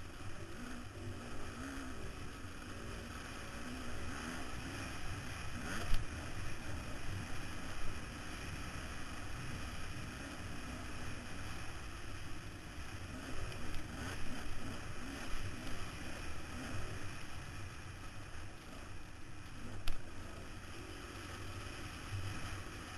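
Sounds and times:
motorcycle engine revving: 0:00.0 - 0:08.7, 0:12.9 - 0:17.6.

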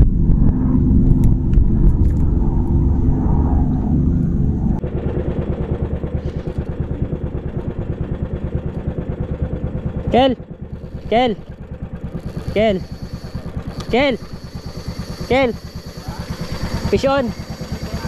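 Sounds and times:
boat engine running: 0:03.9 - 0:18.0.

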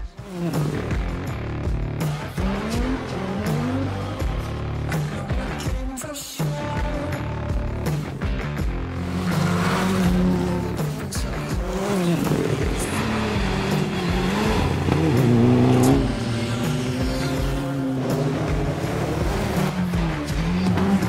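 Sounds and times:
car engine revving: 0:00.0 - 0:05.6, 0:06.8 - 0:21.0
background music: 0:00.0 - 0:21.0.

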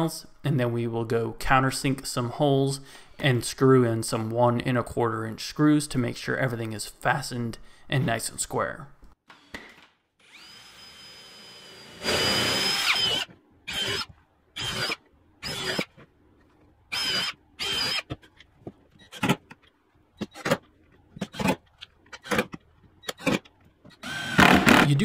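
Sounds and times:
drill boring into plywood: 0:10.2 - 0:15.9, 0:16.9 - 0:18.1, 0:24.0 - 0:24.9
drill driving screws: 0:10.2 - 0:15.9, 0:16.9 - 0:18.2, 0:24.0 - 0:24.9.

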